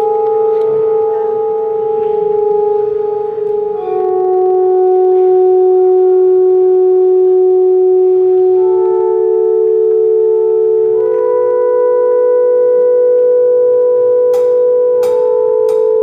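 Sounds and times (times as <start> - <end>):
live band droning chord: 0.0 - 16.0.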